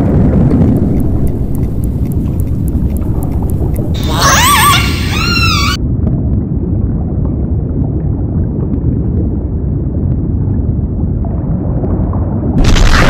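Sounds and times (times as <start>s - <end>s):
low underwater rumble: 0.0s - 13.0s
killer whale whistling cry: 4.0s - 5.8s.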